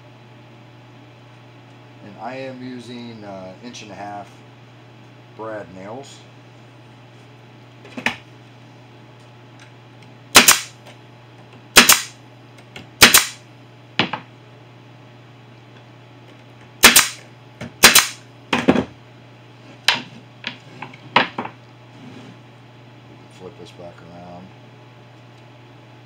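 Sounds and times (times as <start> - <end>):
pneumatic nailer shots: 10.3 - 10.8, 11.8 - 12.2, 13.0 - 13.4, 16.8 - 17.2, 17.8 - 18.2.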